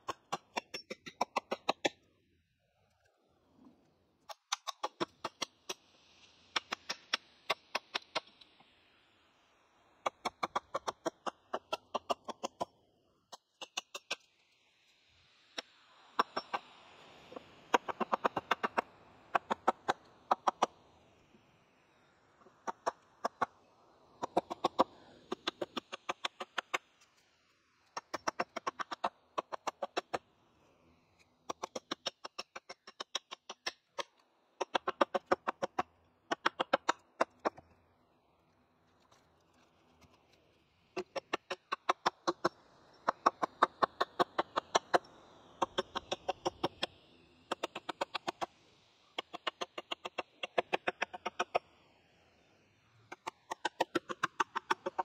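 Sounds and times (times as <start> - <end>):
hatchet chopping wood: 0.0 - 2.0, 4.3 - 5.8, 10.0 - 12.7, 28.0 - 30.1, 31.5 - 34.0, 34.6 - 37.6.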